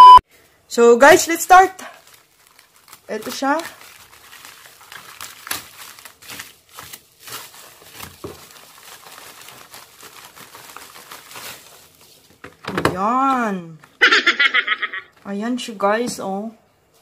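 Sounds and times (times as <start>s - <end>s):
plastic bag tearing and crinkling: 1.7s - 12.4s.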